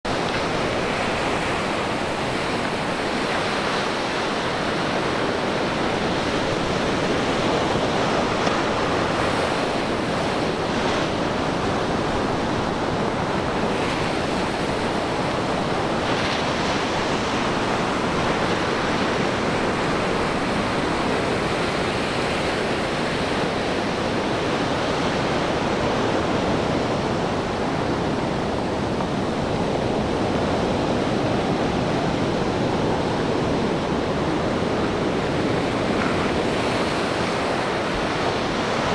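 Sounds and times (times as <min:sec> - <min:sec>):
surf on pebbly beach: 0:00.1 - 0:38.9.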